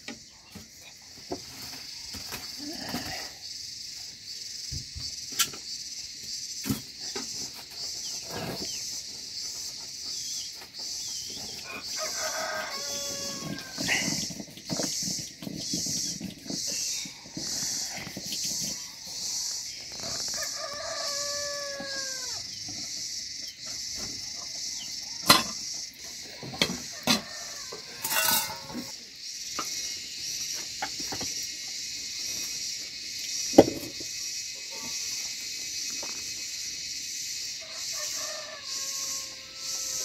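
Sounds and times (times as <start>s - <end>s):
rooster crowing: 11.6s - 14.1s, 20.0s - 22.5s, 26.5s - 28.9s, 37.6s - 40.0s
metal cookware clattering: 28.0s - 28.8s.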